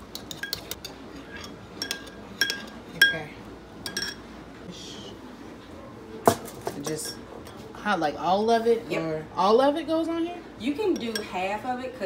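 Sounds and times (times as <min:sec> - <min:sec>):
spoon clinking against glass bowl: 0:00.1 - 0:04.2, 0:11.0 - 0:11.4.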